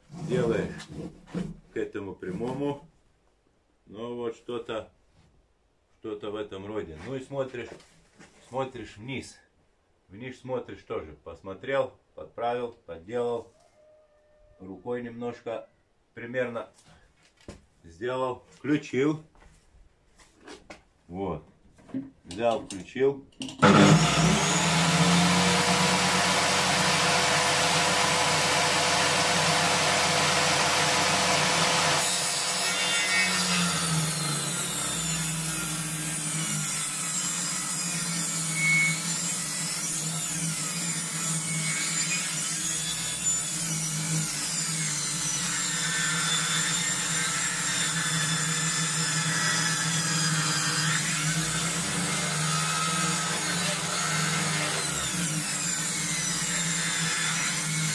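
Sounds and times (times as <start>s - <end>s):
saw ripping log: 0.0s - 1.5s, 23.6s - 57.9s
table saw blade whining: 23.6s - 57.9s.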